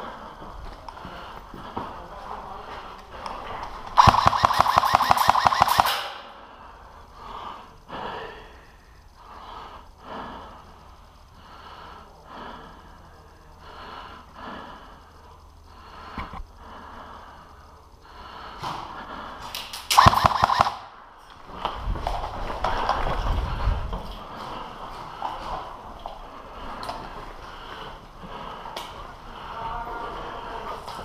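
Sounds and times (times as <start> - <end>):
airsoft gun full-auto burst: 4.0 - 6.2, 19.9 - 21.0
person breathing: 6.2 - 19.5, 22.6 - 31.0.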